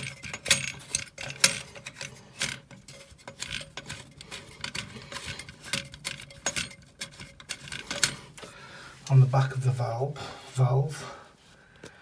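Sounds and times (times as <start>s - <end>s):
metallic clicks of valve nuts: 0.0s - 8.5s.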